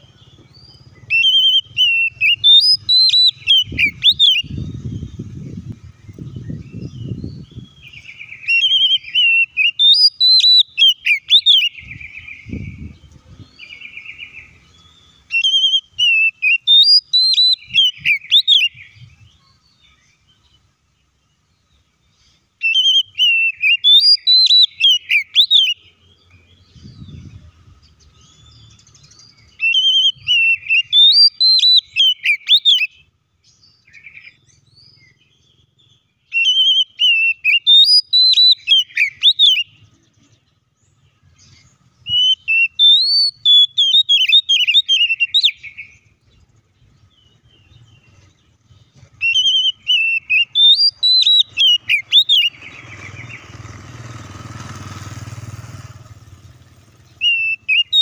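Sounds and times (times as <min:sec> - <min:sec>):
bird singing whistled phrases: 0:00.0 - 0:19.9, 0:22.6 - 0:25.9, 0:28.2 - 0:39.9, 0:41.4 - 0:46.0, 0:49.2 - 0:53.6, 0:57.1 - 0:58.0.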